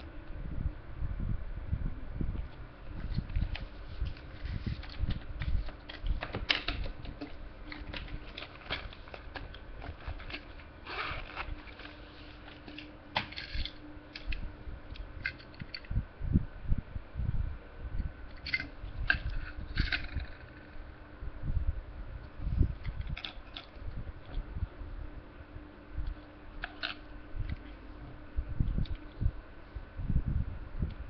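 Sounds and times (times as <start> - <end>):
faint steady hum: 0.0 - 31.0
plastic pouch rustling: 3.0 - 13.4
plastic crinkling: 3.0 - 14.3.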